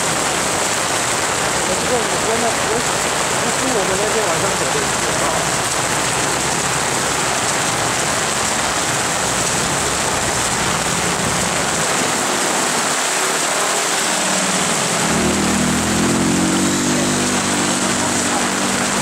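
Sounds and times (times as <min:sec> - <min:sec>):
heavy rain falling: 0:00.0 - 0:19.0
vehicle engine hum: 0:05.4 - 0:19.0.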